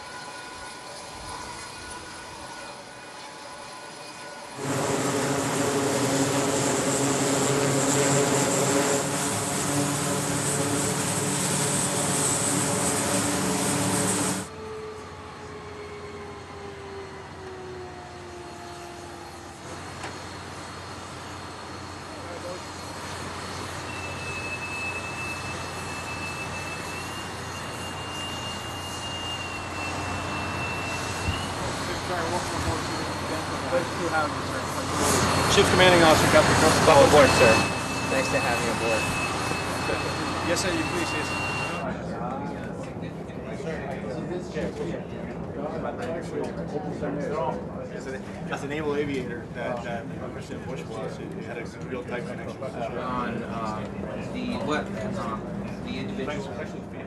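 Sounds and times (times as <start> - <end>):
steady background noise: 0.0 - 57.0
turboprop engines running: 3.8 - 57.0
boatswain's pipe high whistle: 23.8 - 31.7, 35.5 - 41.8.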